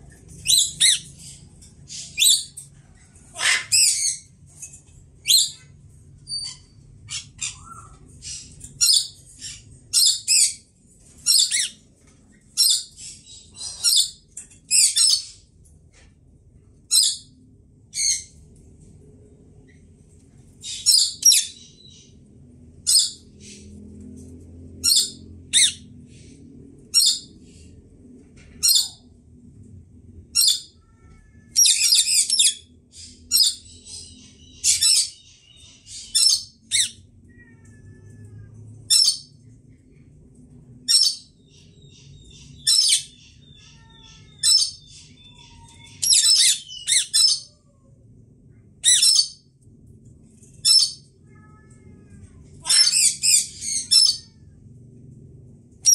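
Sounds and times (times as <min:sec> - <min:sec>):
parakeets squawking: 0:03.3 - 0:04.3, 0:52.6 - 0:54.3.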